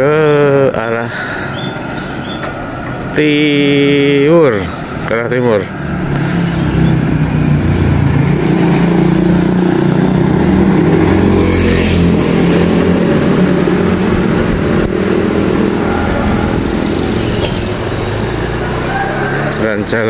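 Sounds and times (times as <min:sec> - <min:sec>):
bicycle tyres humming on road: 0:05.7 - 0:20.0.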